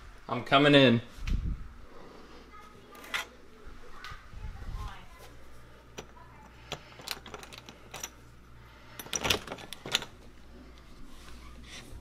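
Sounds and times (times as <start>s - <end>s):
metal doorknob handled: 9.0s - 10.2s.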